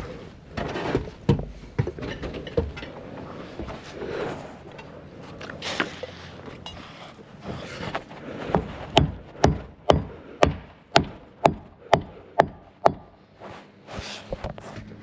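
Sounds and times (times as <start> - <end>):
nails hammered into timber: 8.5 - 13.2.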